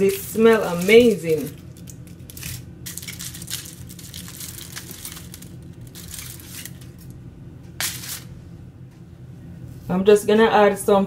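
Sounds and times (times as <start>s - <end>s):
aluminium foil crinkling: 0.0s - 7.2s, 7.8s - 8.3s.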